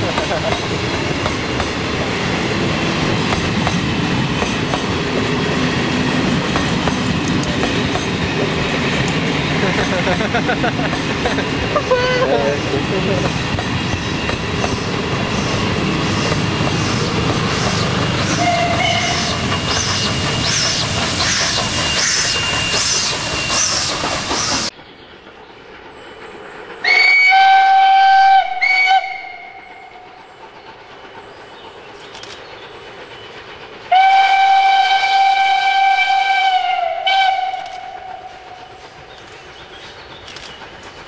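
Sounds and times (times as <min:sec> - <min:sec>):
steam locomotive chuffing past: 0:00.0 - 0:41.0
steam locomotive whistle: 0:17.6 - 0:24.5, 0:26.8 - 0:30.1, 0:33.9 - 0:38.8.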